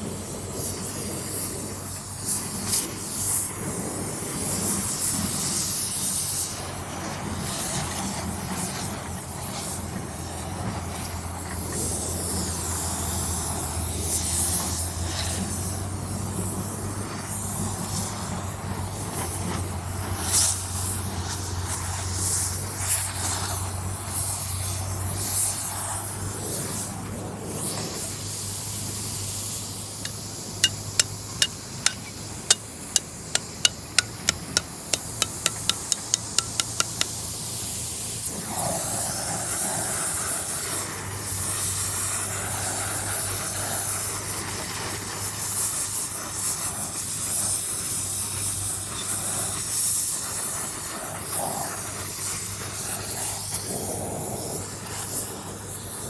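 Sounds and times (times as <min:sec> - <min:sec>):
gas torch flame hissing: 0:00.0 - 0:56.0
hammer tapping on metal: 0:30.0 - 0:37.2.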